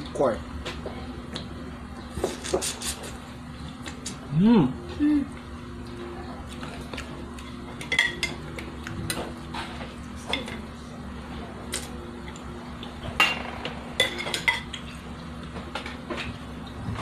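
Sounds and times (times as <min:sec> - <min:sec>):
steady low hum: 0:00.0 - 0:17.0
spoons clinking on ceramic bowls: 0:07.8 - 0:08.4.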